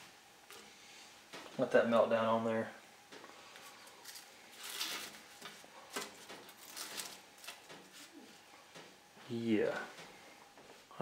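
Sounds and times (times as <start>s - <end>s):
aluminium foil crinkling: 3.5s - 8.4s.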